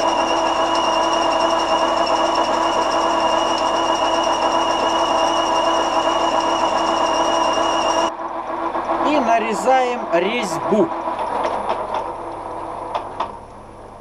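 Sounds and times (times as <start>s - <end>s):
metal lathe humming and whining: 0.0s - 9.0s.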